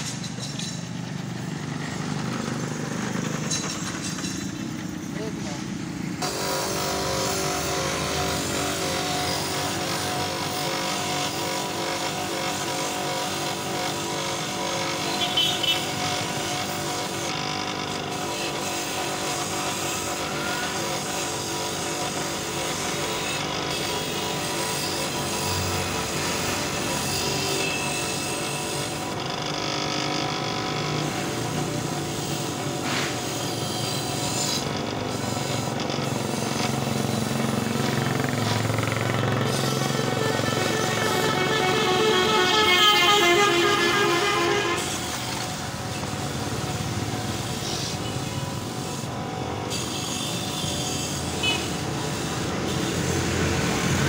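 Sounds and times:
wire brush scrubbing metal: 30.6s - 46.7s
motor hum: 34.0s - 48.4s.

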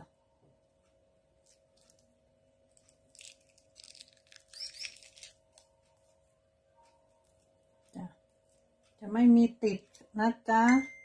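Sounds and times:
faint steady hum: 0.0s - 11.0s
soft tearing and crackling: 1.4s - 6.2s.

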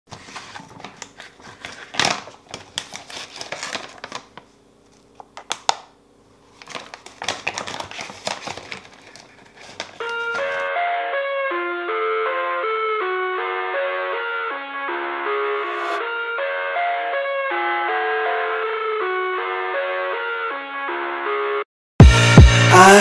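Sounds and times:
plastic pouch crinkling: 0.3s - 5.9s, 6.5s - 10.7s.

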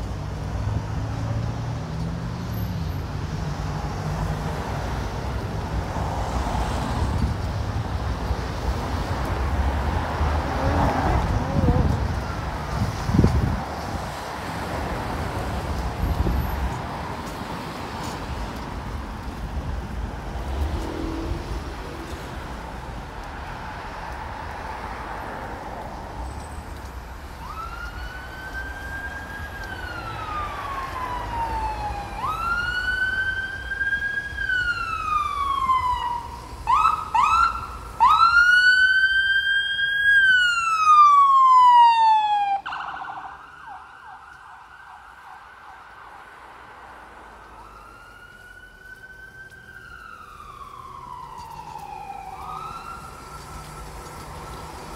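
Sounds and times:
street traffic noise: 0.0s - 54.9s
siren whoops: 27.4s - 46.3s, 47.4s - 54.8s
siren wailing: 27.4s - 46.4s, 47.4s - 54.9s.

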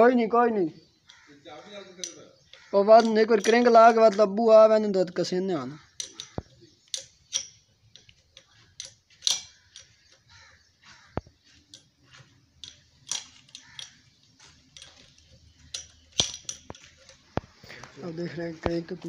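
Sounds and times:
spanner clinking on metal: 1.8s - 4.4s, 5.8s - 10.3s, 12.6s - 17.3s.

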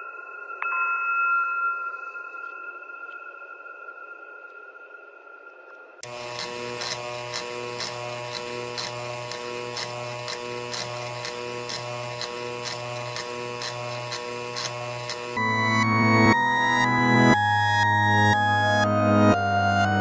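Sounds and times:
ticking beat: 6.0s - 16.9s
buzzing electronic drone: 6.0s - 20.0s.

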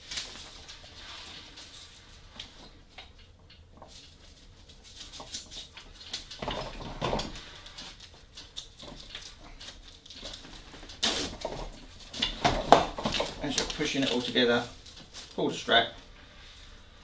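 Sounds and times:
fabric and strap rustling: 3.8s - 17.0s
knock and rattle: 6.2s - 7.4s.

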